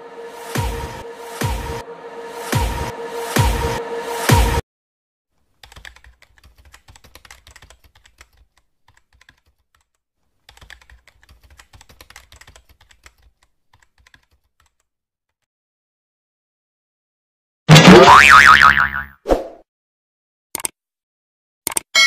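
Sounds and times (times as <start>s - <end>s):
electronic music: 0.0s - 4.6s
rapid keyboard key clicks: 5.6s - 14.9s.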